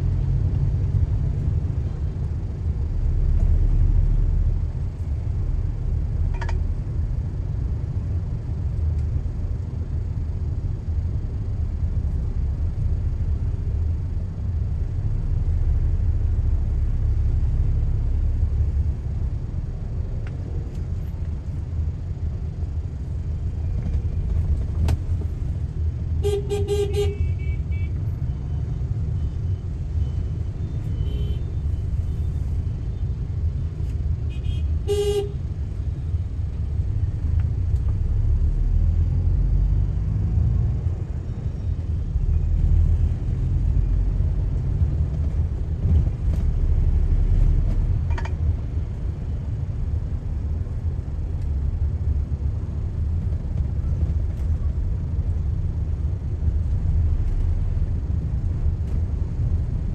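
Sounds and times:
car engine rumble: 0.0s - 59.9s
road noise: 0.0s - 59.9s
car horn beeps: 26.2s - 28.1s, 30.0s - 31.8s, 34.3s - 35.4s.

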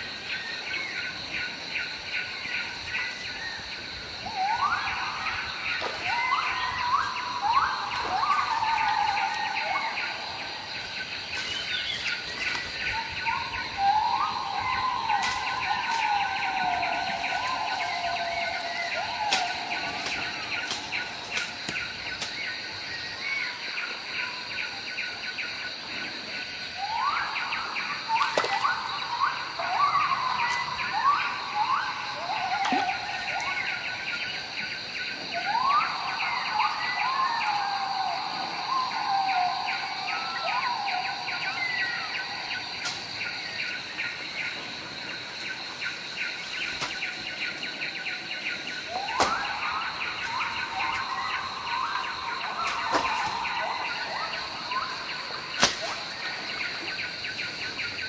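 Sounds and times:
high-pitched insect drone: 0.7s - 58.0s
rising whistled animal calls: 4.2s - 10.6s, 11.4s - 22.0s, 26.8s - 34.3s, 48.8s - 56.0s.

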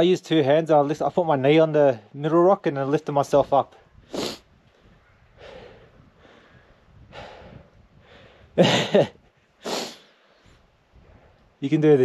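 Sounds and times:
man breathing hard: 4.0s - 8.6s, 9.6s - 11.4s.

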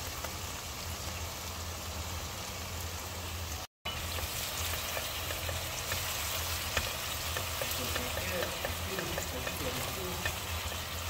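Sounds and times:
sauce sizzling in a pan: 0.0s - 11.0s
spatula stirring sauce: 4.1s - 11.0s.

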